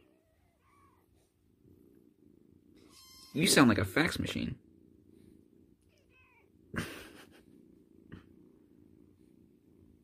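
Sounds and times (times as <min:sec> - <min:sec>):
kitten purring: 0:00.0 - 0:10.0
squeaky chirp: 0:02.8 - 0:03.6.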